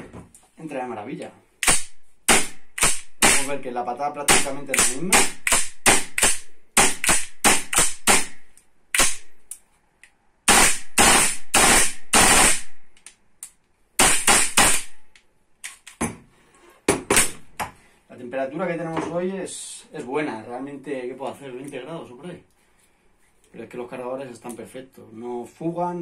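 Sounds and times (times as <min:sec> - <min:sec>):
airsoft rifle shots: 0:01.6 - 0:03.6, 0:04.3 - 0:09.3, 0:10.5 - 0:12.8, 0:14.0 - 0:15.0.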